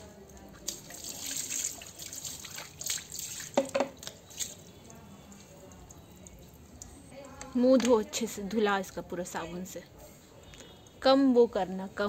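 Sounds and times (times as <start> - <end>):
water splashing on concrete: 0.0 - 8.2.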